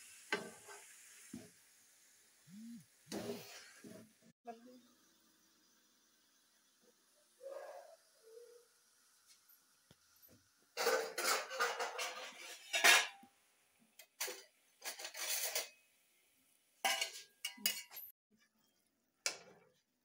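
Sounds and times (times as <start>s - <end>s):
metal spatula scraping a pan: 10.8s - 13.2s, 14.2s - 15.8s.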